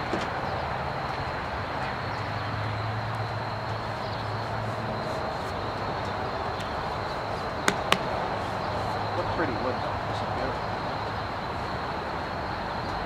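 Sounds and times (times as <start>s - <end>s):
sharp knock: 7.7s - 8.1s.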